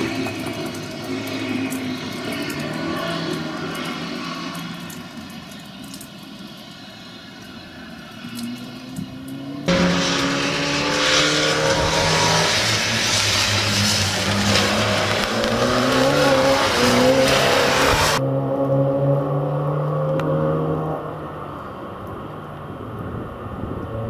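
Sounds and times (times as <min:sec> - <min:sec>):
tyre hiss on wet road: 0:00.0 - 0:18.2
rally car engine revving: 0:08.8 - 0:21.4.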